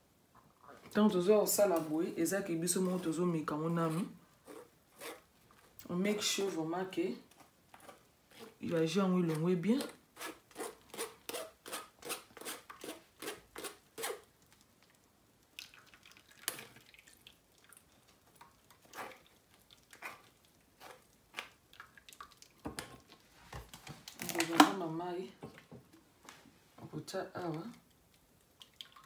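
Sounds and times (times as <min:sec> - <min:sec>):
juice dripping: 0:13.8 - 0:23.3, 0:27.3 - 0:29.0.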